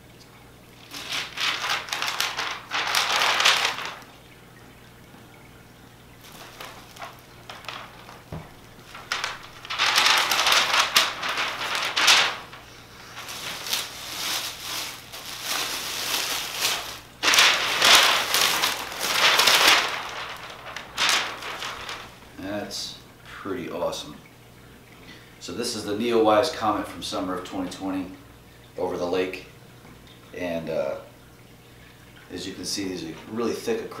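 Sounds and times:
plastic wrap and paper crinkling: 0.8s - 4.3s, 6.2s - 22.5s.

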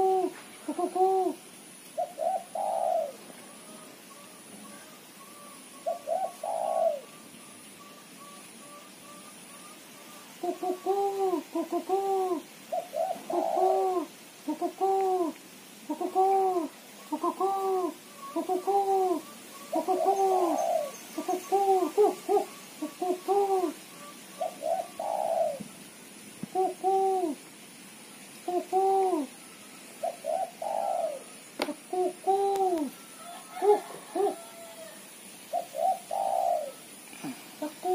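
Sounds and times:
dove chattering coos: 0.0s - 27.5s, 28.4s - 37.9s.

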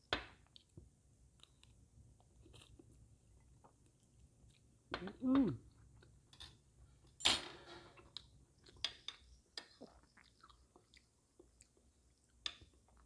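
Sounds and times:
chewing: 8.1s - 13.0s.

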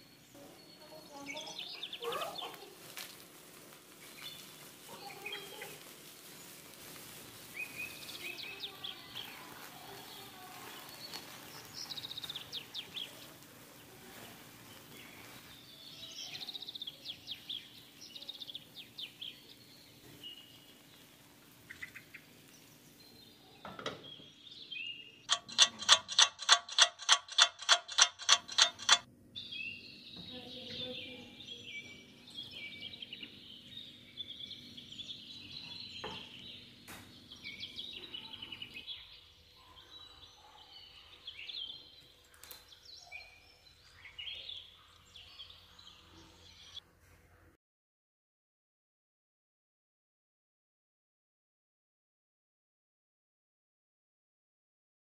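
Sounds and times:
birds chirping: 21.7s - 29.1s.

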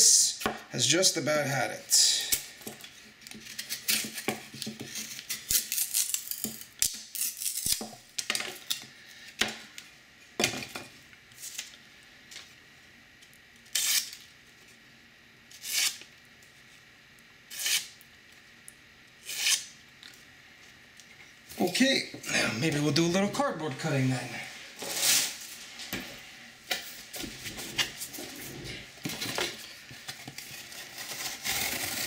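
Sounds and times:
knife whittling wood: 19.2s - 19.7s.

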